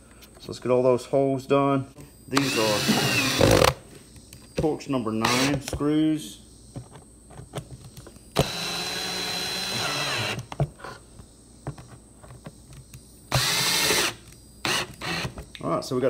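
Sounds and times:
power drill whining: 0:02.4 - 0:03.8, 0:05.2 - 0:05.6, 0:08.4 - 0:10.4, 0:13.3 - 0:15.4.

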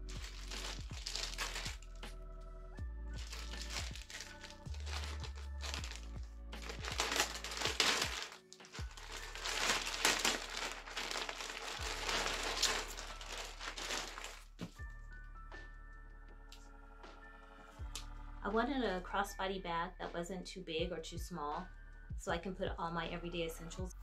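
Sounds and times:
plastic bag crinkling: 0:00.0 - 0:01.9, 0:03.2 - 0:14.6
background music: 0:00.0 - 0:24.0.

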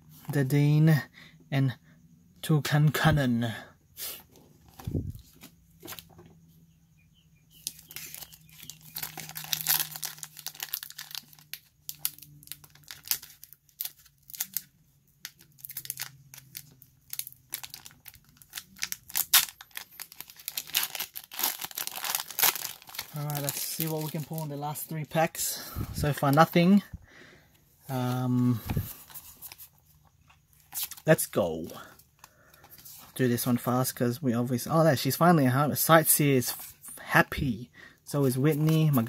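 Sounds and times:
foil wrapper crinkling and tearing: 0:07.6 - 0:24.9.

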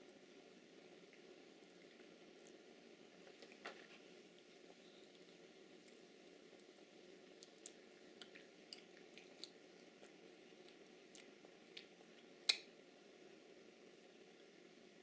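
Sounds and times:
faint room hum: 0:00.0 - 0:15.0
wet chewing smacks: 0:07.4 - 0:11.9.

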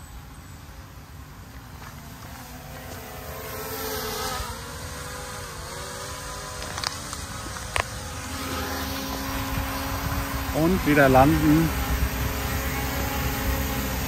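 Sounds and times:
drone propellers whining: 0:00.0 - 0:14.0
wind rumble on microphone: 0:06.1 - 0:14.0.

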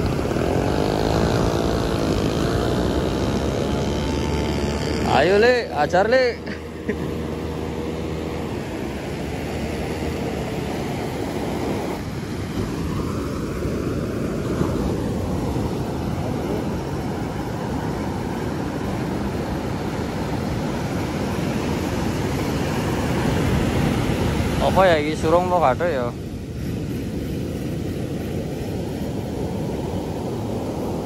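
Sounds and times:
ocean surf breaking on beach: 0:00.0 - 0:31.0.

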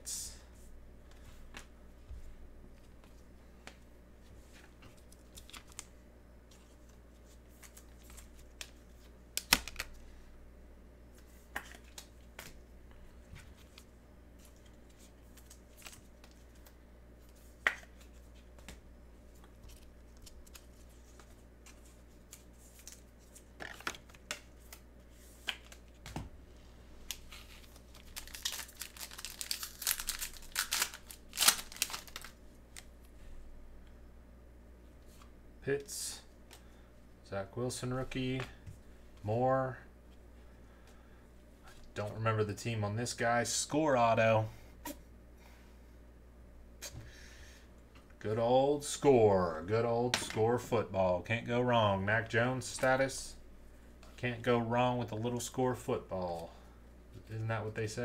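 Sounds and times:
wrapper tearing and crinkling: 0:27.1 - 0:32.4.

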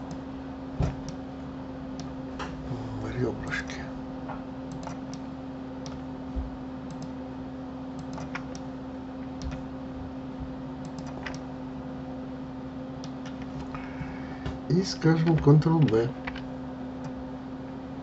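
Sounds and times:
low electrical hum: 0:00.0 - 0:18.0
mouse and keyboard clicks: 0:04.7 - 0:05.2, 0:08.0 - 0:08.7.

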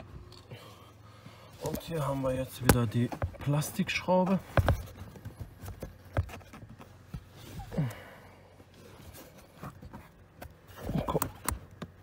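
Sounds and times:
person sighing: 0:07.6 - 0:08.6.

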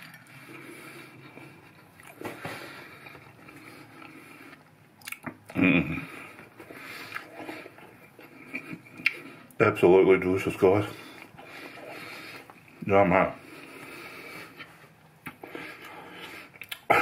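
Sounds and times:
person chewing lettuce: 0:00.0 - 0:09.6, 0:13.5 - 0:17.0
heavy nasal breathing: 0:00.3 - 0:04.8, 0:05.9 - 0:09.5, 0:10.8 - 0:17.0.

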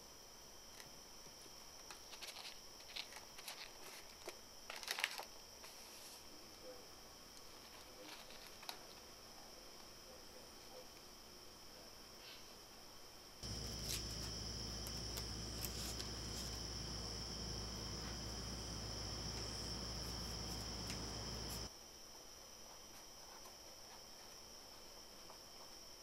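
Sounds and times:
low hum: 0:13.4 - 0:21.7.

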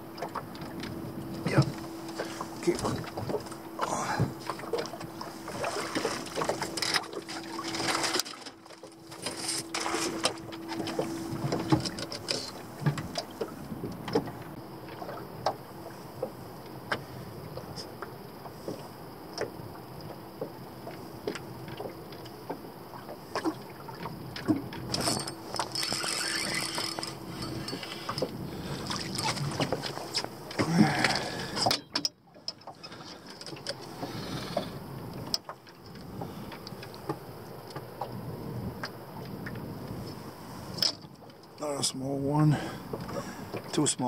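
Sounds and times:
faint steady hum: 0:00.0 - 0:44.0
fishing tackle clicks and knocks: 0:06.2 - 0:13.3, 0:24.4 - 0:28.4.

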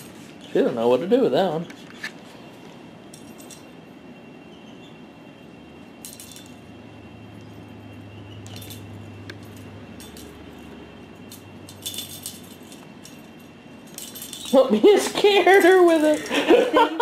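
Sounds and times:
small bell jingling: 0:07.9 - 0:16.4.

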